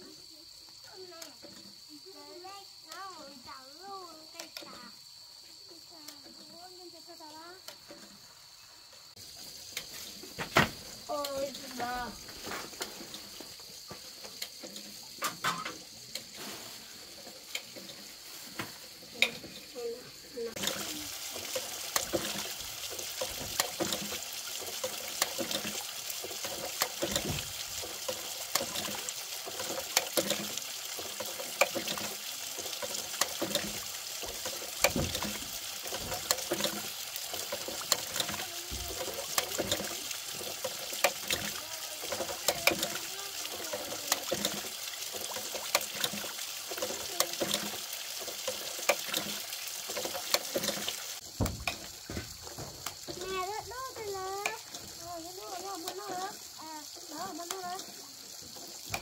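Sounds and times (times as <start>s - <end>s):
hose water splashing: 0.0s - 59.0s
water pouring into tank: 20.4s - 59.0s.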